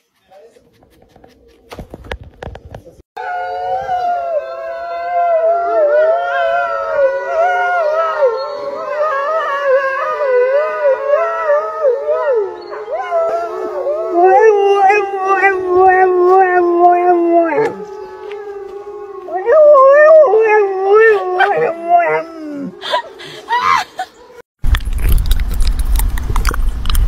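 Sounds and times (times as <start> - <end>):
dog howling: 3.2 - 23.9
wolves howling: 3.2 - 24.3.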